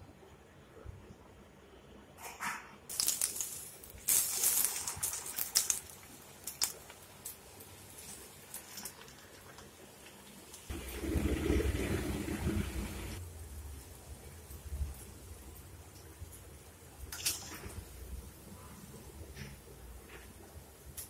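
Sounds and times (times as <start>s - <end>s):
batter sizzling in hot oil: 2.9s - 11.2s.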